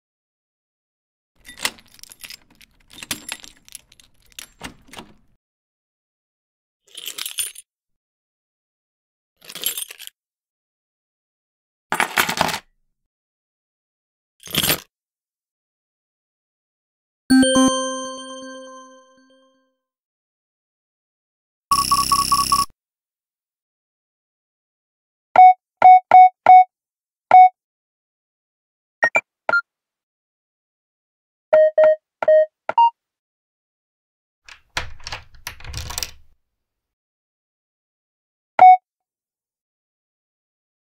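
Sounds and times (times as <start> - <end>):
metal keys jangling: 1.4 - 5.3
short electronic beeps: 29.0 - 29.6.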